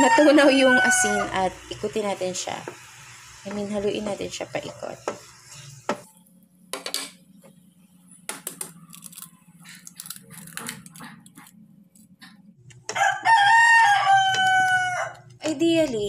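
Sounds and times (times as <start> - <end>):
rooster crowing: 0.0 - 1.5, 12.9 - 15.3
egg tapped and cracked: 8.3 - 9.2.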